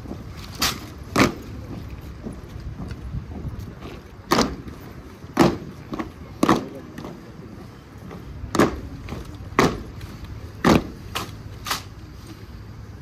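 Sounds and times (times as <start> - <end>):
boots stamping on stone: 0.0 - 7.2, 8.0 - 10.0, 10.6 - 11.3
sharp boot knocks: 5.4 - 6.7.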